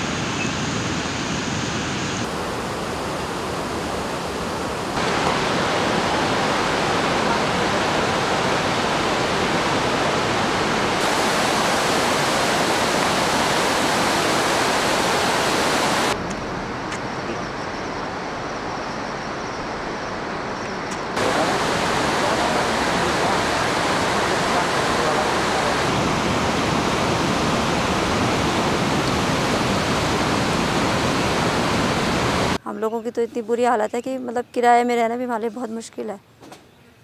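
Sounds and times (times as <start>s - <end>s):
river rushing: 0.0s - 16.2s, 19.2s - 32.6s.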